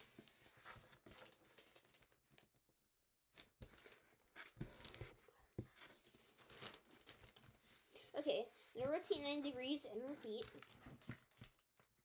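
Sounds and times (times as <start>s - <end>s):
paper being folded and creased: 0.0s - 2.5s, 3.4s - 12.0s
paper crinkling: 0.0s - 2.5s, 5.8s - 8.1s, 8.8s - 11.9s.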